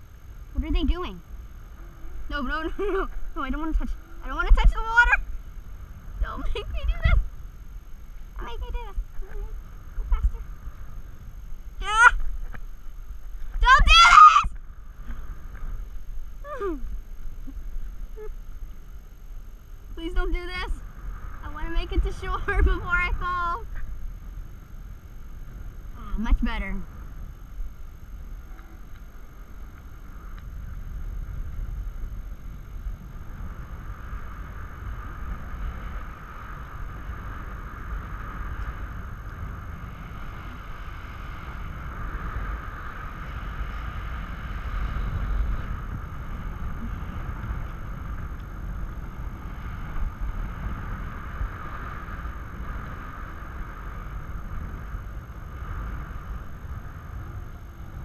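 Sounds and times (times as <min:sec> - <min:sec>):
wind buffeting microphone: 0:00.0 - 0:18.9, 0:19.9 - 0:58.0
steady high whine: 0:00.0 - 0:58.0.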